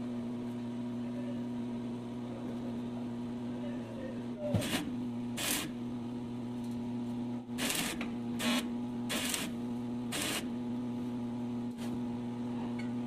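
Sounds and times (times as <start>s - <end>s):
welding machine hum: 4.5s - 12.2s
crackling welding arc bursts: 5.4s - 5.7s, 7.6s - 10.5s.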